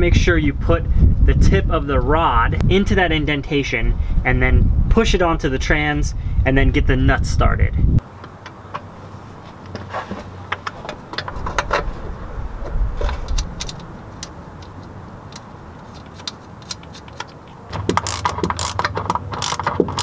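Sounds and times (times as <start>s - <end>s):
socket ratchet clicking: 13.3s - 20.0s.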